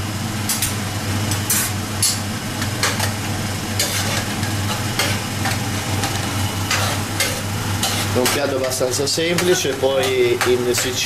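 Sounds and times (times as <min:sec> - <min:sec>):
sauce sizzling: 0:00.9 - 0:11.0
utensil scraping a pan: 0:03.8 - 0:11.0.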